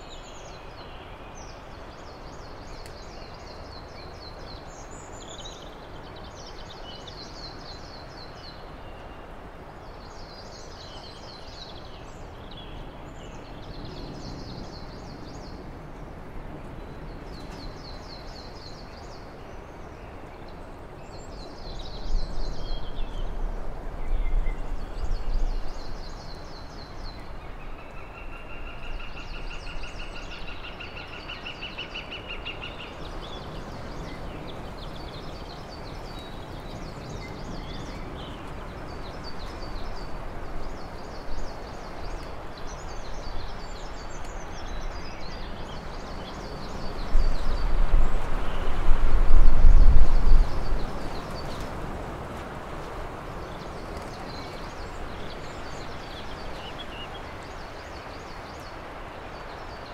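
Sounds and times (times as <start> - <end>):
steady rushing noise: 36.6 - 59.9.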